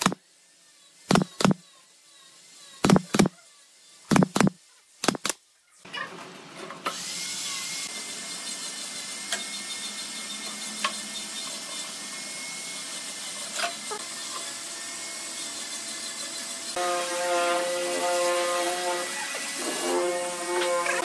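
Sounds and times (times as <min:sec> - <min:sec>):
machine hissing: 0:00.0 - 0:05.3.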